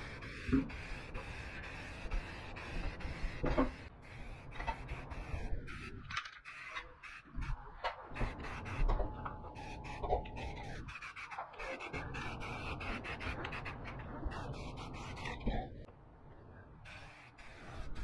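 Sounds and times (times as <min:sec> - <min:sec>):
aerosol spray hissing: 0:00.0 - 0:05.9, 0:09.6 - 0:15.2, 0:16.9 - 0:18.0.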